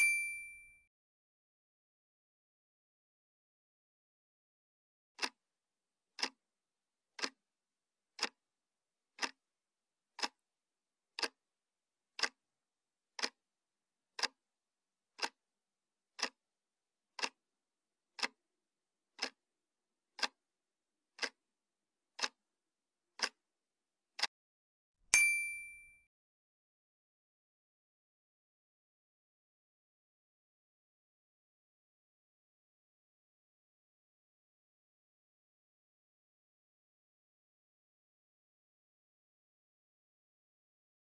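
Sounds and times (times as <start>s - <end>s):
bright ding: 0.0s - 0.8s, 25.2s - 26.1s
clock ticking: 5.2s - 5.4s, 6.2s - 6.4s, 7.2s - 7.4s, 8.2s - 8.4s, 9.2s - 9.4s, 10.2s - 10.4s, 11.2s - 11.4s, 12.2s - 12.4s, 13.2s - 13.4s, 14.2s - 14.4s, 15.2s - 15.4s, 16.2s - 16.4s, 17.2s - 17.4s, 18.2s - 18.4s, 19.2s - 19.4s, 20.2s - 20.4s, 21.2s - 21.4s, 22.2s - 22.4s, 23.2s - 23.4s.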